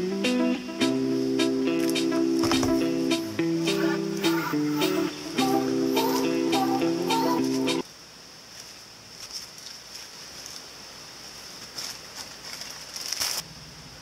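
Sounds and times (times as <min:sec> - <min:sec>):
ukulele music: 0:00.0 - 0:07.8
faint steady hiss: 0:00.0 - 0:14.0.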